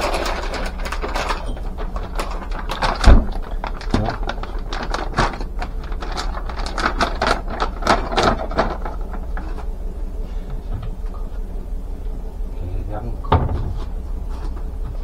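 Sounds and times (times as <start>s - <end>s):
packaging crinkling and rustling: 0.0s - 9.7s.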